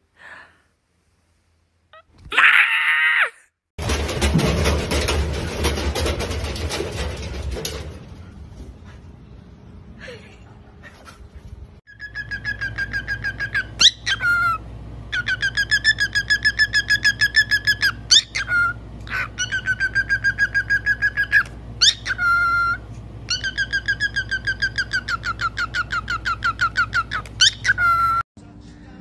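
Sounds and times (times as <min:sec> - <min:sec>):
cockatiel chirping: 0:11.9 - 0:14.6, 0:15.2 - 0:28.2.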